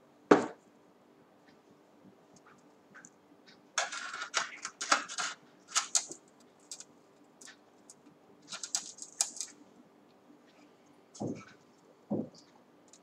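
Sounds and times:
objects handled on a tabletop: 3.8s - 7.6s.

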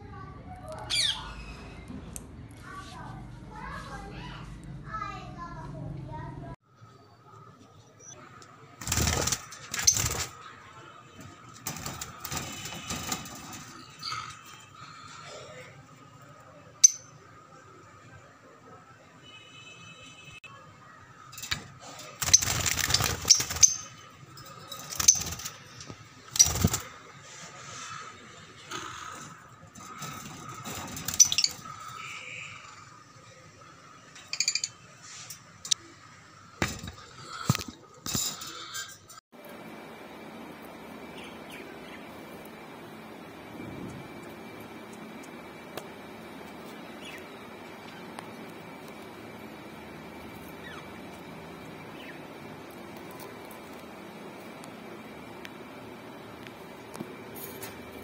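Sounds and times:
cage wire rattling: 8.8s - 10.4s, 11.2s - 14.6s, 21.3s - 26.9s, 29.1s - 31.9s
parrots flapping wings: 8.8s - 10.6s, 11.2s - 14.6s, 21.4s - 27.2s, 28.7s - 32.1s.

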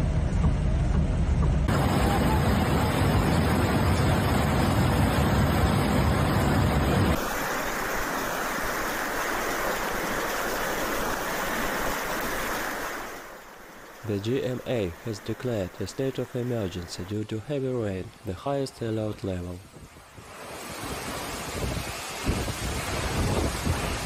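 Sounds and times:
heavy rain: 0.8s - 24.0s
rushing floodwater: 1.7s - 24.0s
wind rumble on microphone: 19.6s - 24.0s.

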